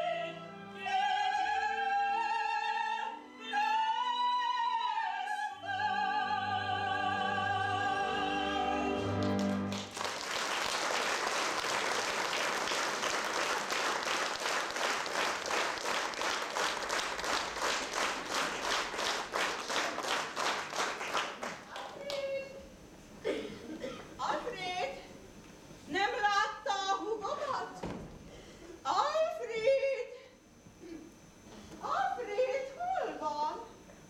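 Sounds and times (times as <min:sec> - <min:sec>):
singers and orchestra holding note: 0:00.0 - 0:09.9
audience applause: 0:09.1 - 0:22.2
rhythmic clapping in unison: 0:09.1 - 0:22.3.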